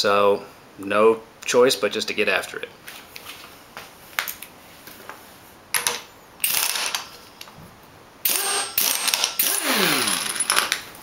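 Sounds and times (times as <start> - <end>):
pneumatic impact wrench hammering: 6.4 - 7.1, 8.2 - 10.8.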